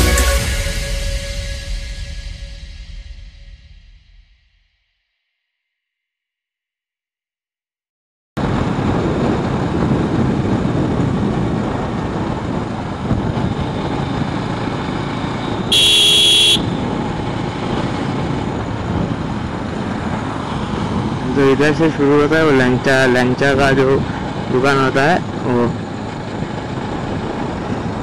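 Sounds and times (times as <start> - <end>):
motorcycle engine and road noise: 8.4 - 28.0
wind rush on microphone: 8.4 - 28.0
vehicle horn honk: 15.7 - 16.7.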